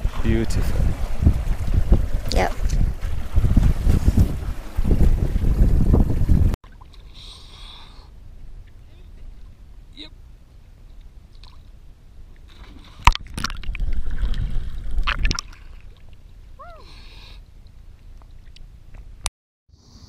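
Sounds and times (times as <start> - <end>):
underwater rushing and bubbling: 0.0 - 7.0, 12.3 - 16.3
person splashing into water: 12.5 - 16.0.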